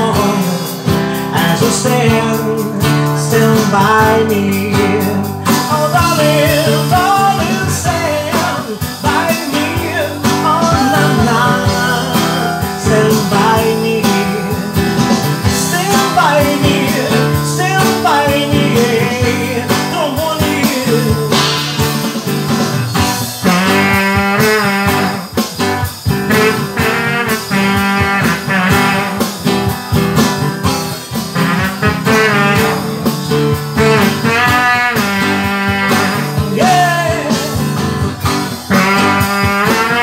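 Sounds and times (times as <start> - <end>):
man singing: 0.0 - 22.3, 31.4 - 40.0
acoustic guitar strumming: 0.0 - 40.0
drum kit: 0.0 - 40.0.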